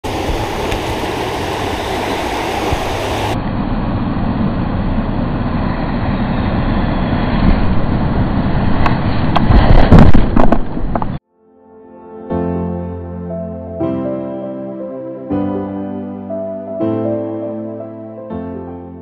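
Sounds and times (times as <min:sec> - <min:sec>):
river rushing over rocks: 0:00.0 - 0:03.4.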